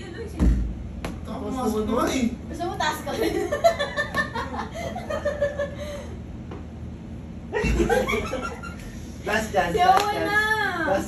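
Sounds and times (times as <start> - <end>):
people laughing: 3.1 - 6.1, 7.5 - 8.9.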